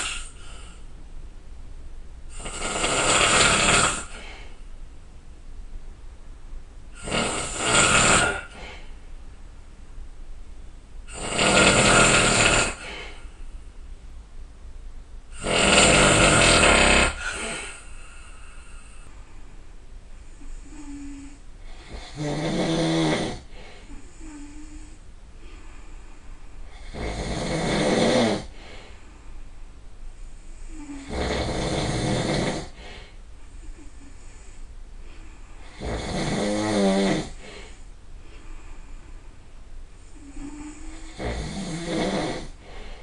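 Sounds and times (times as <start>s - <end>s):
person snoring loudly: 0.0s - 0.7s, 2.3s - 4.4s, 7.0s - 8.9s, 11.1s - 13.2s, 15.3s - 19.0s, 20.4s - 23.5s, 26.8s - 28.6s, 30.7s - 32.8s, 35.6s - 37.5s, 40.2s - 42.6s.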